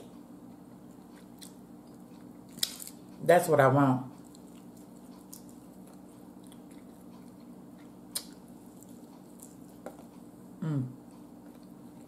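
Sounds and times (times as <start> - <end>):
steady low hum: 0.0 - 12.0
person chewing and biting: 0.4 - 3.2, 4.2 - 10.4.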